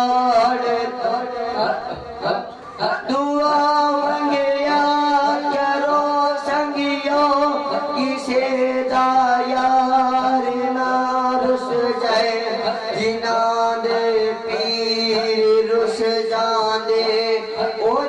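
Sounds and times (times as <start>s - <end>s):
boys singing through microphone: 0.0s - 18.0s.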